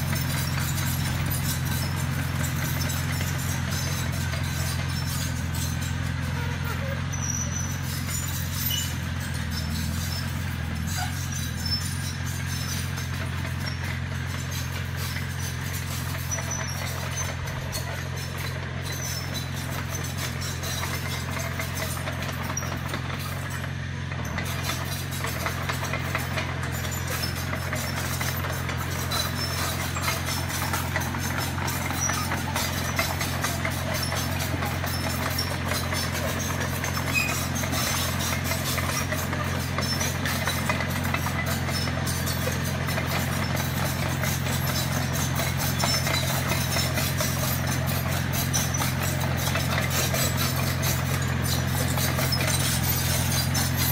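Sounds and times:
bulldozer diesel engine running: 0:00.0 - 0:53.9
steel tracks clattering: 0:24.2 - 0:53.9.

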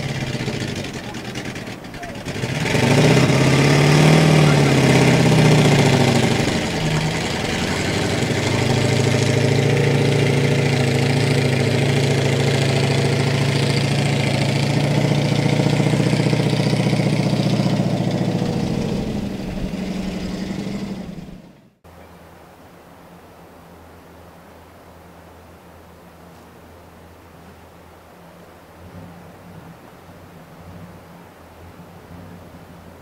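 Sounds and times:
truck engine humming: 0:00.0 - 0:21.7.

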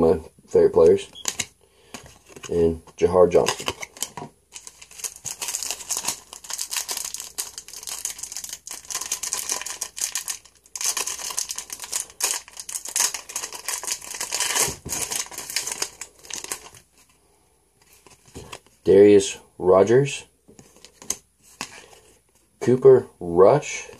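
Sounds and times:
foil wrapper crinkling and tearing: 0:03.3 - 0:16.8.

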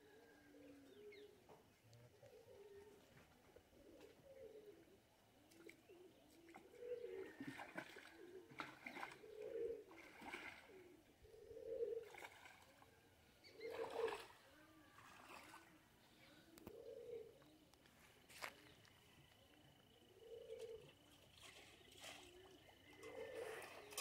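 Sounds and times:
dove cooing: 0:00.0 - 0:24.0
water sloshing from wading: 0:05.5 - 0:11.0, 0:11.9 - 0:16.0, 0:20.6 - 0:24.0.

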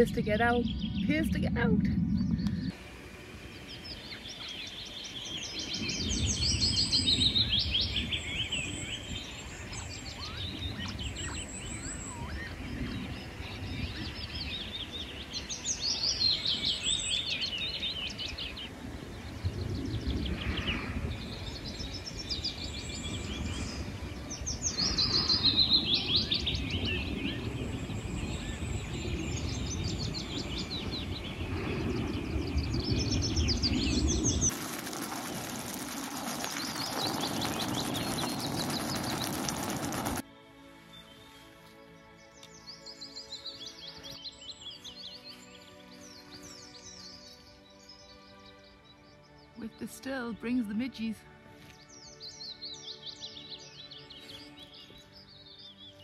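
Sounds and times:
songbird trilled song: 0:00.0 - 0:02.8, 0:03.5 - 0:34.5, 0:36.4 - 0:40.0, 0:42.2 - 0:51.1, 0:51.7 - 0:56.0
low rumble: 0:00.0 - 0:04.4, 0:18.8 - 0:40.2.

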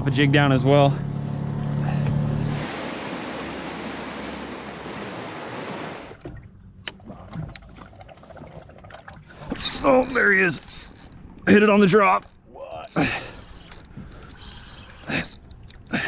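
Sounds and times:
wind around boat: 0:00.0 - 0:16.0
sea water rushing: 0:02.4 - 0:06.3
small clicks and knocks: 0:13.6 - 0:14.5.

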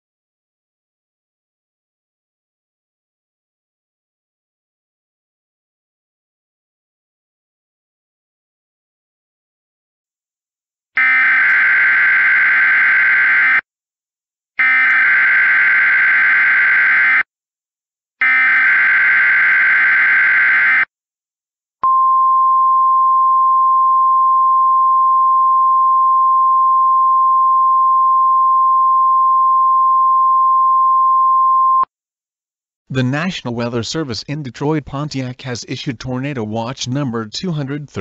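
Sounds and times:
steady alarm tone: 0:11.0 - 0:13.6, 0:14.6 - 0:17.3, 0:18.2 - 0:20.9.

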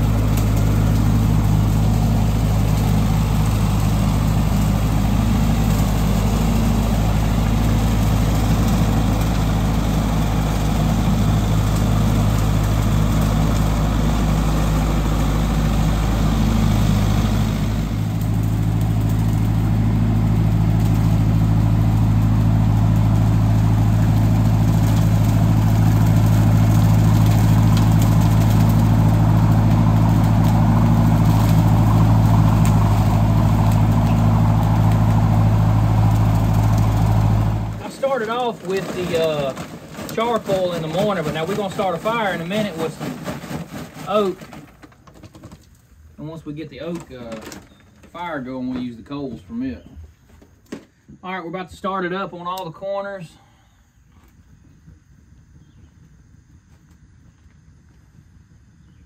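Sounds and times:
rotary cutter mowing grass: 0:00.0 - 0:44.5
tractor engine running under load: 0:00.0 - 0:49.5.

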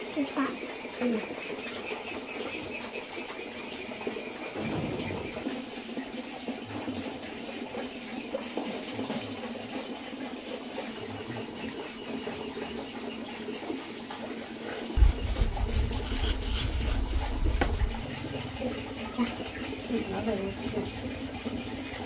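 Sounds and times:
cleaver shaving mango peel: 0:15.0 - 0:18.0
thump: 0:15.0 - 0:18.0
low rumble: 0:15.0 - 0:18.6.

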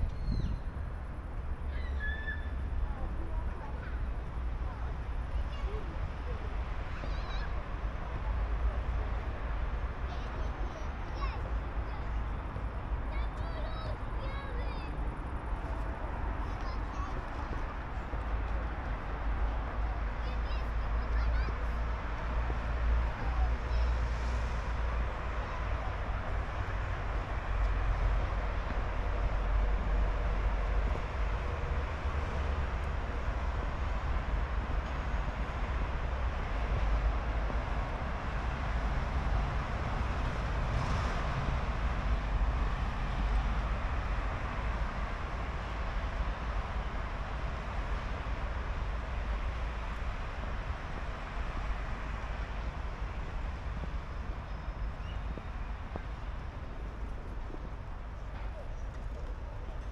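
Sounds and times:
traffic noise: 0:00.0 - 0:59.9.

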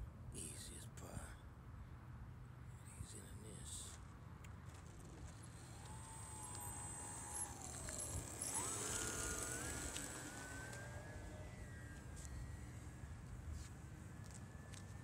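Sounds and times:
low rumble of wind: 0:00.0 - 0:15.0
model plane motor whining: 0:04.7 - 0:15.0.

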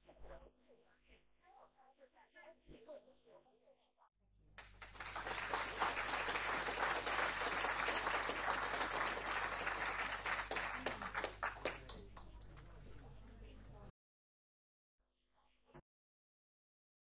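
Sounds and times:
audience applauding: 0:04.6 - 0:12.8.

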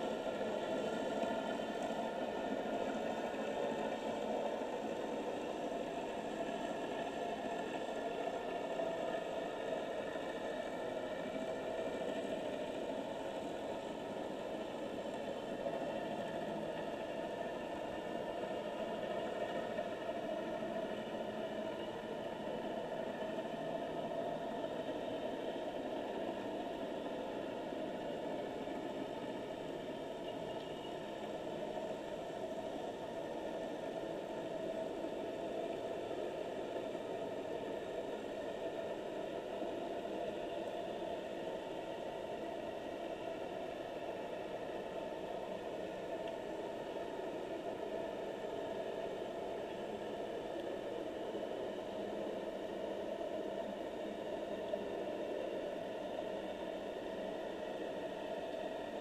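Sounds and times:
faint constant hum: 0:00.0 - 0:59.0.

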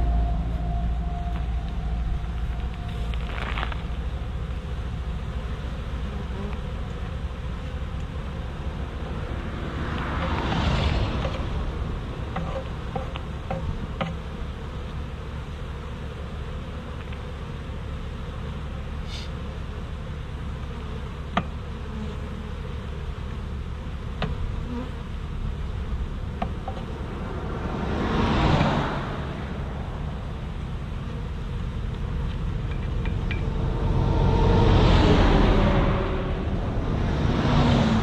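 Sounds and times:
bees buzzing: 0:00.0 - 0:38.0
broad whoosh: 0:33.5 - 0:38.0.

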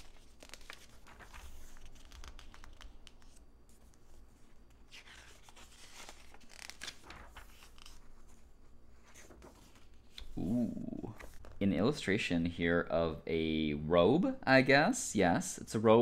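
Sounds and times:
paper pages rustling: 0:00.0 - 0:10.4, 0:11.2 - 0:11.8.

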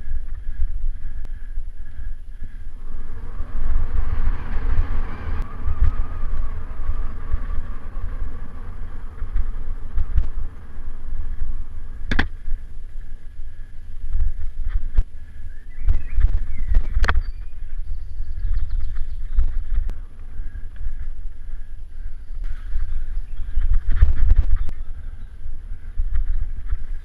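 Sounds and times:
bike tyres and rattle: 0:00.0 - 0:27.0
wind buffeting microphone: 0:00.0 - 0:27.0
bike hitting bump knock: 0:12.0 - 0:12.6.

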